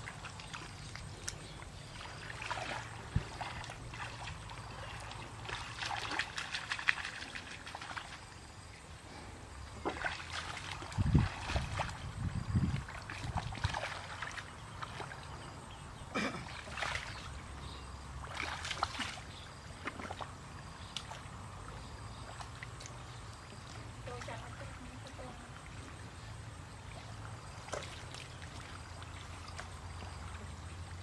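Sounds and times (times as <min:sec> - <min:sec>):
splashing in muddy water: 0:00.0 - 0:08.7, 0:09.7 - 0:31.0.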